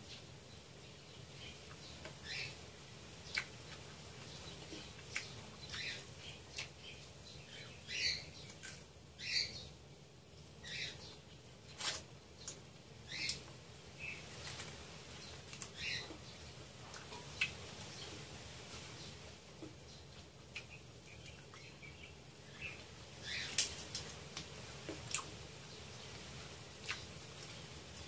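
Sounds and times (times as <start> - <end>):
wet chewing and sucking: 26.8 - 27.6.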